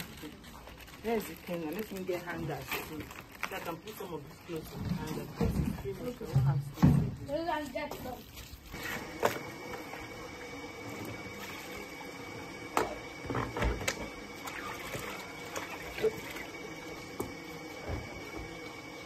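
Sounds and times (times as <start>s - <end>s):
plastic bath and buckets clattering: 1.1s - 10.1s, 12.8s - 18.6s
water being emptied: 8.0s - 19.0s.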